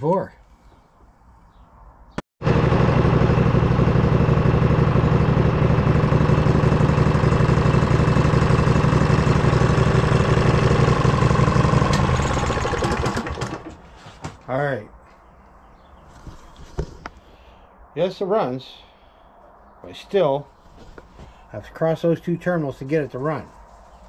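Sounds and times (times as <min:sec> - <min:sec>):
lawn tractor engine running: 0:02.4 - 0:14.1.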